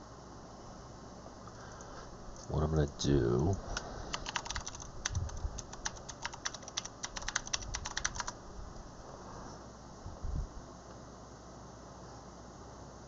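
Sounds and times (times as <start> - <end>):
keyboard typing: 3.7 - 8.4.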